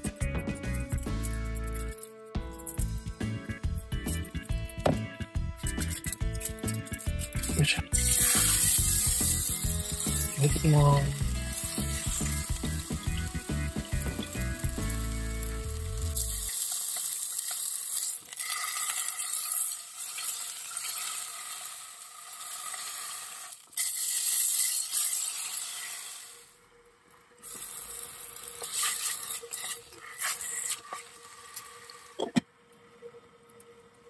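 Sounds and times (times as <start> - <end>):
sharp knock: 4.8 - 5.1
beef sizzling in a frying pan: 6.0 - 26.6, 27.4 - 32.2.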